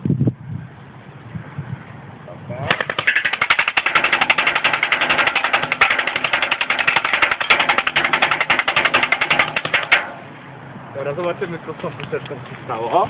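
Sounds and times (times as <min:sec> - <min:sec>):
pellets hitting cans and metal: 0:02.7 - 0:10.3.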